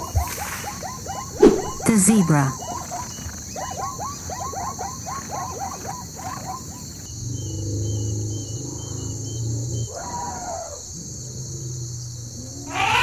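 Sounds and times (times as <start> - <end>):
zebra barking yelps: 0.0 - 7.1, 12.6 - 13.0.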